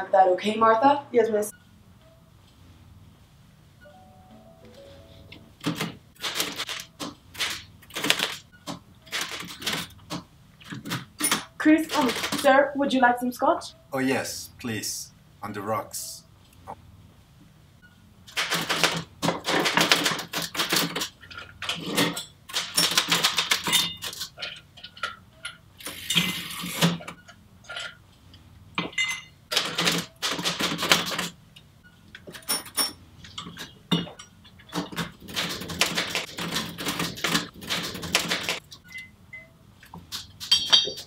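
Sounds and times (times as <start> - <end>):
glassware clinking on metal tray: 28.8 - 29.4, 40.5 - 41.0.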